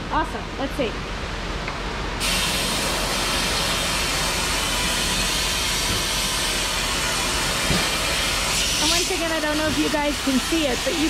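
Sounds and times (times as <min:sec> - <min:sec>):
compressed air gun hissing: 0:02.2 - 0:11.0.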